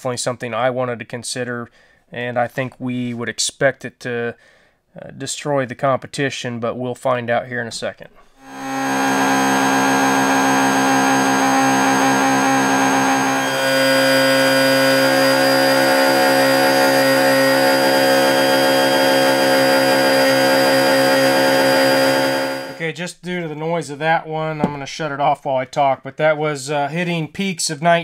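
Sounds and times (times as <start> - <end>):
electric air pump whining: 8.2 - 22.8.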